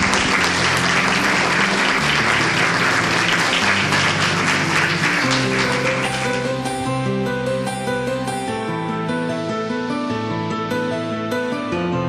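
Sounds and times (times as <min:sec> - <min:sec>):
audience applauding: 0:00.0 - 0:06.9
background music: 0:00.0 - 0:12.0.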